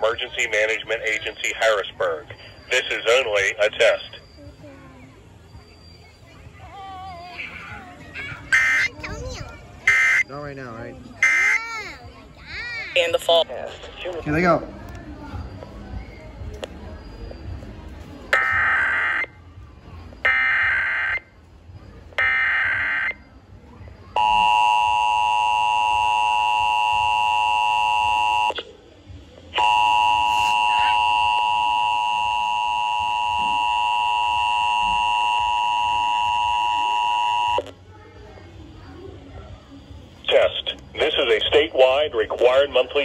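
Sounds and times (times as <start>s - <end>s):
two-tone attention signal: 24.2s - 28.6s, 29.6s - 37.7s.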